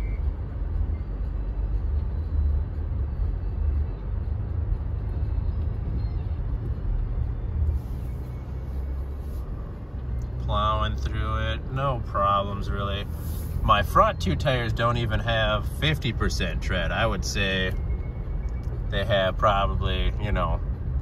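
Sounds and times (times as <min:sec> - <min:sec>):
vehicle driving through snow: 0:00.0 - 0:15.2.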